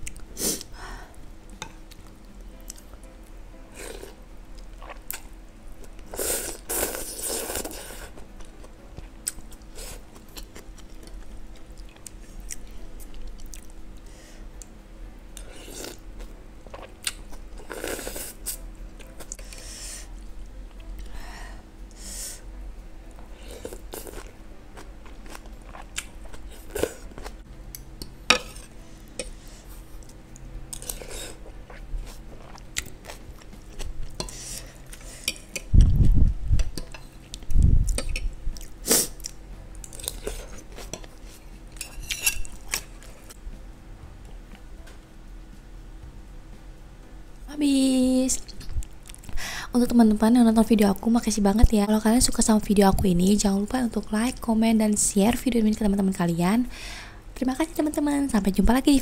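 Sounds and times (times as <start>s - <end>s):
person chewing: 3.8s - 5.3s, 15.5s - 19.5s, 23.5s - 27.8s, 30.0s - 43.4s
person slurping noodles: 6.1s - 8.1s
metal cutlery clinking on bowl: 41.8s - 42.6s.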